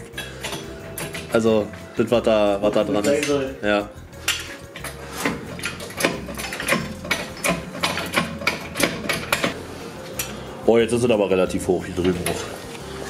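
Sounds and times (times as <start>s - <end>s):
hand tool clicking and clanking: 0.0s - 10.4s.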